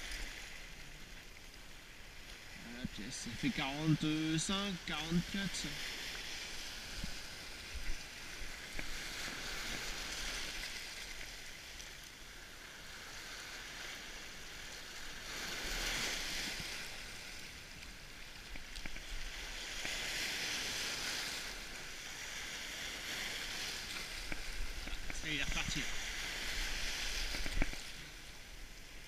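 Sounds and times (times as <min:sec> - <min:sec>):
waves washing over rocks: 0:00.0 - 0:29.0.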